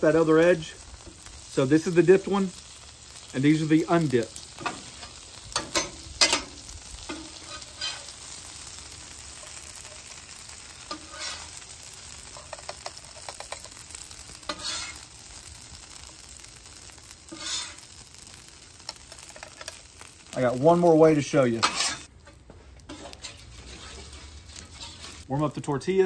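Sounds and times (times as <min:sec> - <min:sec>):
food sizzling on griddle: 0:00.0 - 0:26.0
metal spatula scraping griddle: 0:04.4 - 0:10.2, 0:10.8 - 0:15.1, 0:17.2 - 0:19.8, 0:21.4 - 0:25.3.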